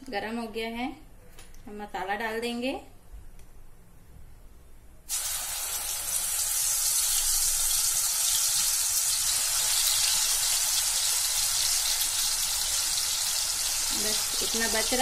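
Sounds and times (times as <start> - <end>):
spices sizzling in hot oil: 5.1 - 15.0.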